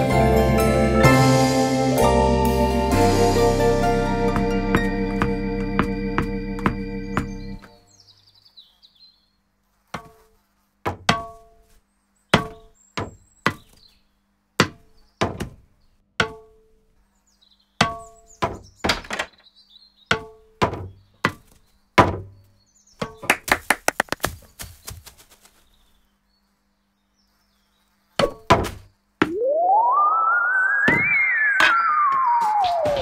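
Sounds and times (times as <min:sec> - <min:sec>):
ball hitting racket strings: 0:04.3 - 0:07.7, 0:23.0 - 0:24.4.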